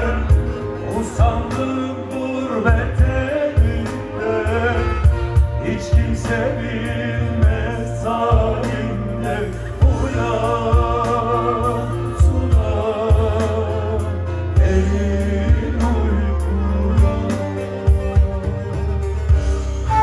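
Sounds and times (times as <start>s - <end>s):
man singing through pa: 0.0s - 18.3s
keyboard: 0.0s - 20.0s
lute: 0.0s - 20.0s
low drum beat: 2.7s - 20.0s.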